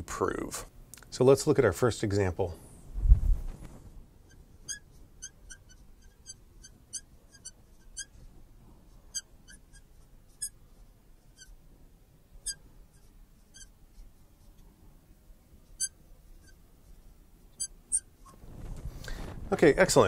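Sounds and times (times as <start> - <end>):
marker squeaking on glass: 4.2 - 11.6, 12.4 - 14.7, 15.6 - 18.4.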